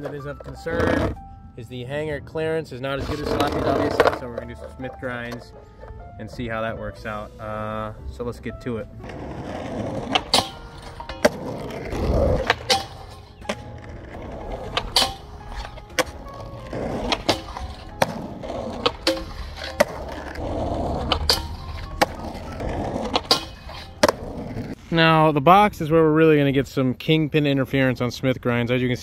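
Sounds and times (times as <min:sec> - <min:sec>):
skateboard rolling on asphalt: 0:00.0 - 0:01.2, 0:03.0 - 0:05.9, 0:08.9 - 0:24.8
background music: 0:00.0 - 0:25.2
skateboard clacks: 0:09.0 - 0:24.6
trucks grinding on metal bar: 0:09.0 - 0:24.8.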